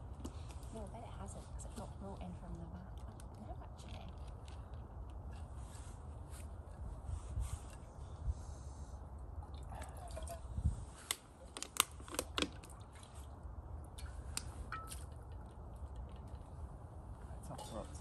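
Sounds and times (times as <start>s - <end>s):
low wind rumble on microphone: 0.0s - 12.0s.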